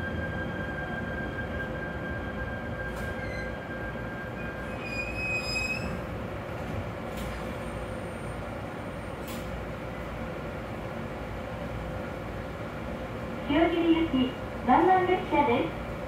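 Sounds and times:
train wheels rumbling on track: 0:00.0 - 0:16.0
high wheel squeals: 0:00.1 - 0:06.1.

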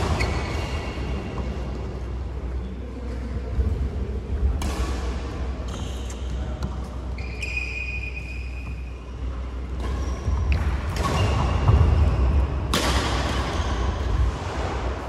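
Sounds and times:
shoe squeaks: 0:00.0 - 0:01.4, 0:05.7 - 0:12.4
racket hitting shuttlecock: 0:04.6 - 0:06.8, 0:09.7 - 0:15.0.

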